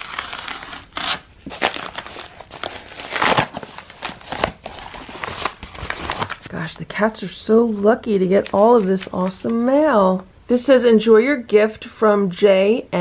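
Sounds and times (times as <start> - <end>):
paper mailer crinkling: 0.0 - 6.6.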